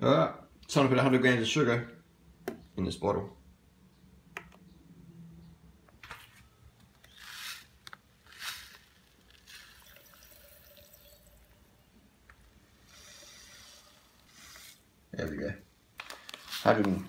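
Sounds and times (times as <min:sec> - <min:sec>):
sugar pouring into plastic bottle: 0:07.1 - 0:11.8, 0:12.7 - 0:14.9.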